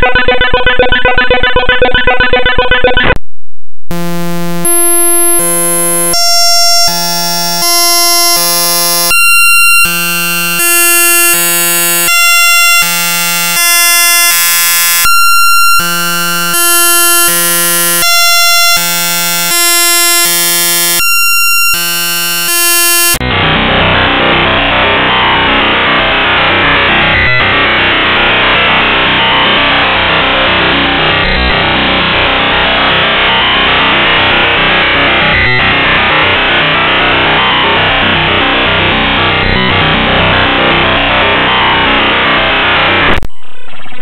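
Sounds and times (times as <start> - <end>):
buzzy synthesized electronic tones: 0.0 - 3.2, 3.9 - 23.4.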